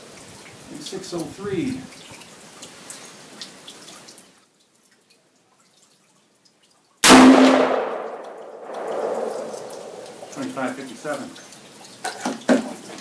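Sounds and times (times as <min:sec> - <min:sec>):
rifle shot: 0:07.0 - 0:10.4.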